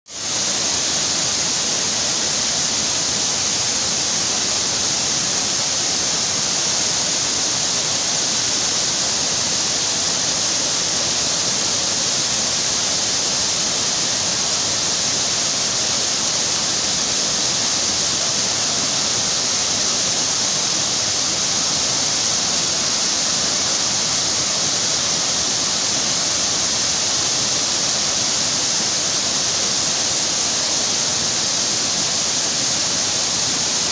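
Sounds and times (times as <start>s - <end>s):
water rushing down rocky slope: 0.1s - 33.9s.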